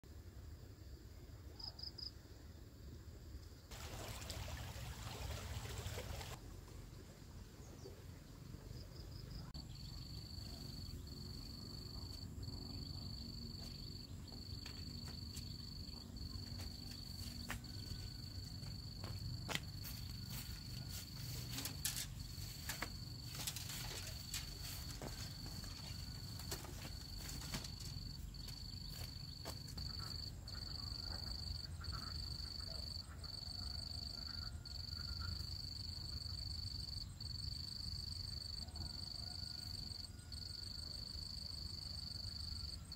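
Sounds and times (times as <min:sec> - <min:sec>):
rustling: 0:19.8 - 0:29.2.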